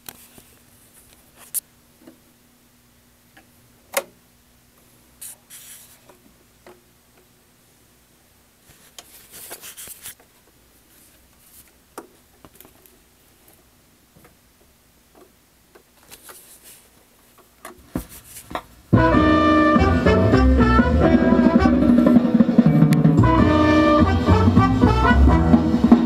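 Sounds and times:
jazz with brass and drums: 0:18.9 - 0:26.0.

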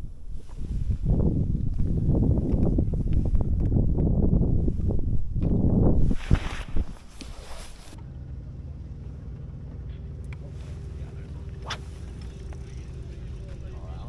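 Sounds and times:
wind buffeting microphone: 0:00.0 - 0:08.2.

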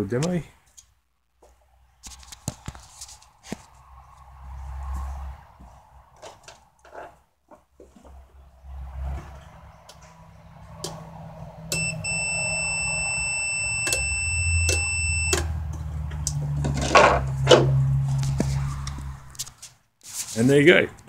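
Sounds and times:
multimeter beep: 0:11.7 - 0:15.5
scuffing noises: 0:18.0 - 0:20.5.

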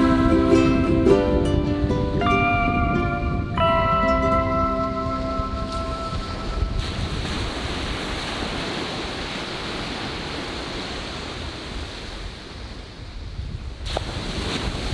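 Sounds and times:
chime-like music notes: 0:00.0 - 0:06.8
waves breaking on a beach: 0:00.0 - 0:14.9
wind on microphone: 0:00.0 - 0:14.9.

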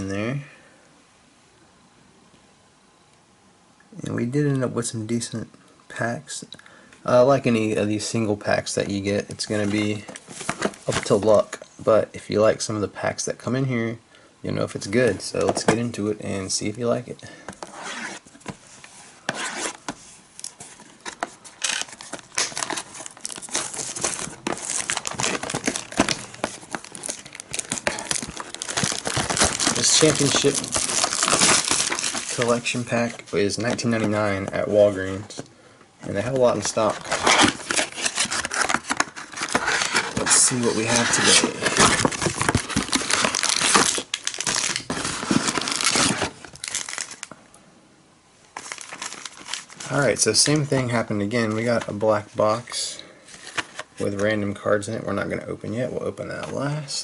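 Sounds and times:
packs crinkling and rustling: 0:19.6 - 0:35.4, 0:36.1 - 0:47.4, 0:48.5 - 0:52.0
plastic shrink wrap crackling: 0:20.4 - 0:34.7, 0:36.1 - 0:47.4, 0:48.6 - 0:50.4.

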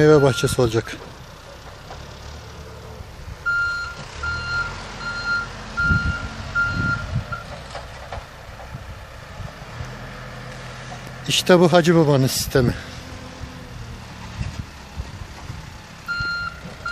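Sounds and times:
engine running low: 0:00.0 - 0:16.9
reversing alarm beeping: 0:00.1 - 0:00.7, 0:03.4 - 0:07.5, 0:16.1 - 0:16.9.

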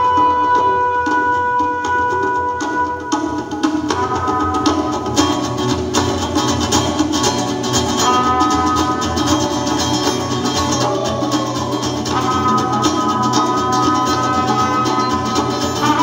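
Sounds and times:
live rock band playing: 0:00.0 - 0:16.0
drum hits: 0:01.2 - 0:16.0
bass line: 0:04.0 - 0:16.0.

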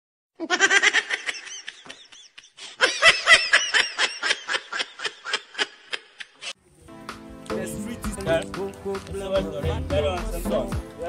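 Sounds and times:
high-pitched giggling: 0:00.4 - 0:06.6.

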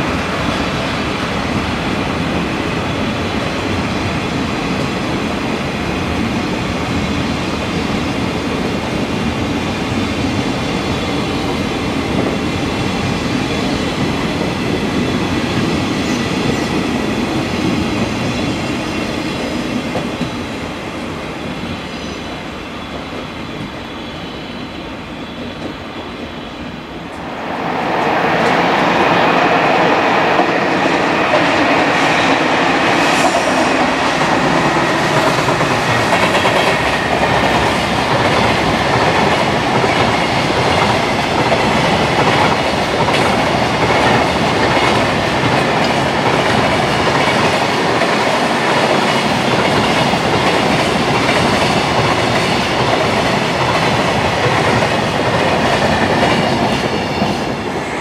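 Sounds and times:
freight train wheels clattering: 0:29.8 - 0:57.6.

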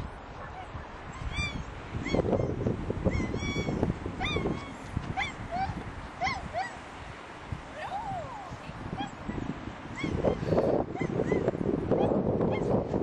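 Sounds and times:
puppy yipping and whining: 0:01.2 - 0:06.8, 0:09.9 - 0:12.7.

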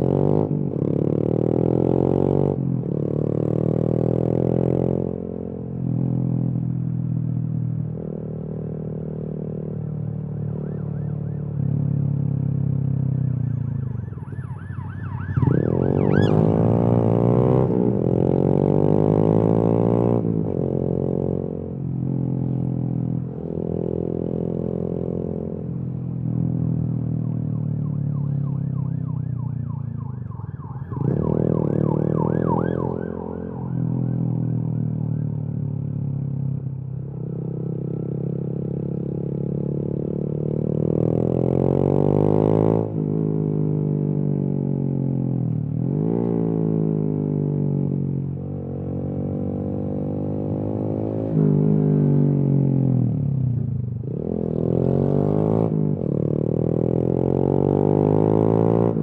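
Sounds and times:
faint siren wailing: 0:10.0 - 0:18.2, 0:26.8 - 0:36.8
motorcycle engine accelerating: 0:14.0 - 0:59.0.

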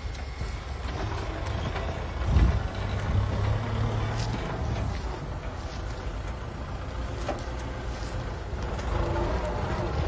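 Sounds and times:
tractor diesel engine rumbling: 0:00.0 - 0:10.0.

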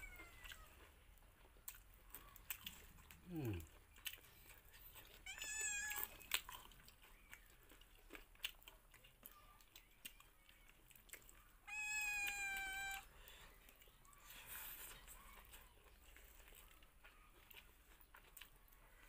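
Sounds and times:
cat meowing: 0:00.0 - 0:00.7, 0:05.2 - 0:06.2, 0:11.6 - 0:13.1
chewing sounds: 0:00.0 - 0:19.0.

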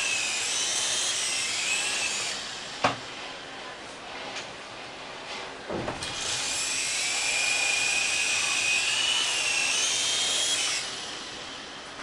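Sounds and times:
toy helicopter motors whining: 0:00.0 - 0:02.7, 0:06.0 - 0:11.6.

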